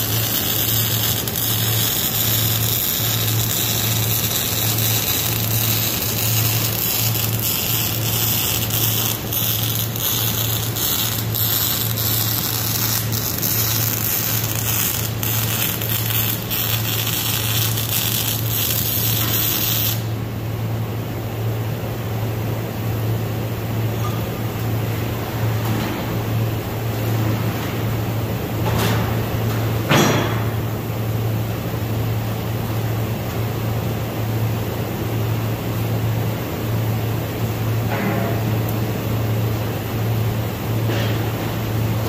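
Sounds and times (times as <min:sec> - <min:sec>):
welding arc crackling and hissing: 0:00.0 - 0:20.2
steady low hum: 0:00.0 - 0:29.9.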